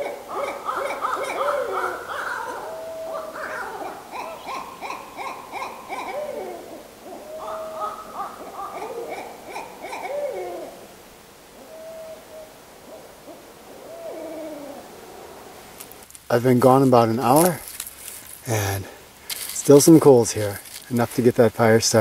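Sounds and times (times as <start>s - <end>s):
owls hooting: 0.0s - 16.0s.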